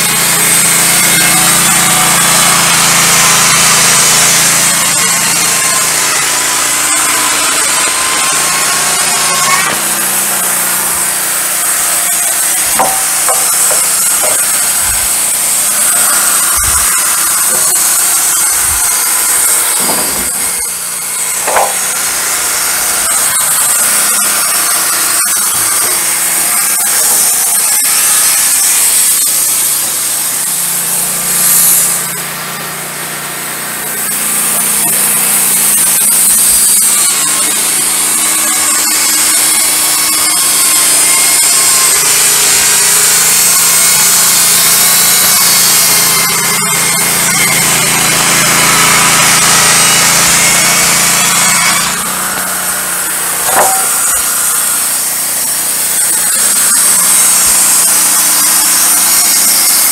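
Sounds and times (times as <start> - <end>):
bandsaw mill running: 0.0 - 59.9
wooden knocks of boards: 12.8 - 14.5, 21.4 - 21.8, 53.4 - 54.0.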